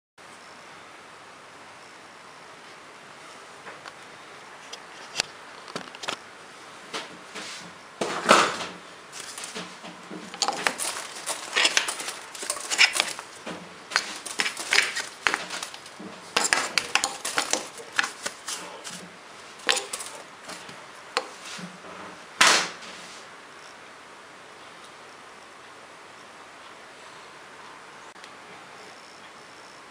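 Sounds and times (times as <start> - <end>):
stiff brush scrubbing metal: 9.2 - 21.6.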